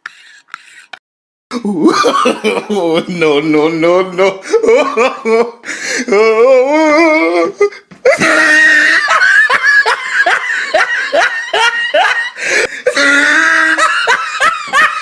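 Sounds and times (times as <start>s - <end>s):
person laughing heartily: 0.1s - 3.2s, 4.2s - 15.0s.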